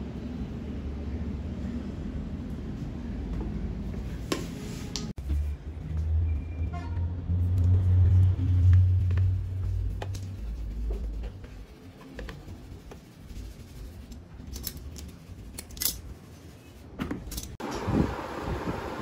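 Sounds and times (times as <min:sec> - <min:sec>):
low hum: 0:05.2 - 0:14.1.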